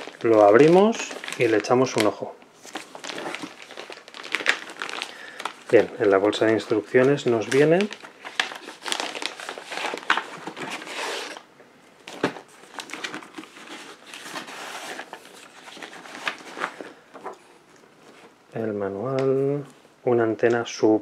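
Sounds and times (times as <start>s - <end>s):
plastic bag crinkling: 0.0s - 18.4s.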